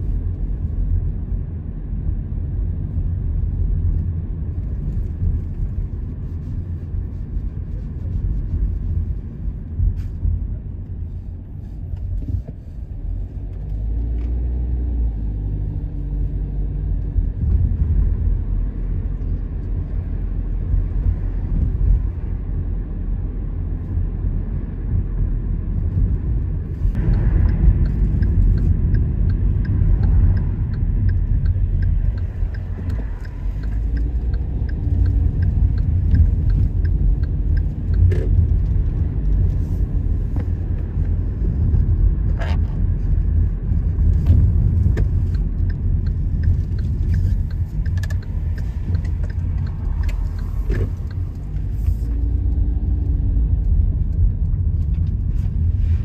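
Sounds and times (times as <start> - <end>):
car road and engine rumble: 0.0 - 56.0
faint regular light ticks: 27.0 - 38.9, 44.8 - 54.2.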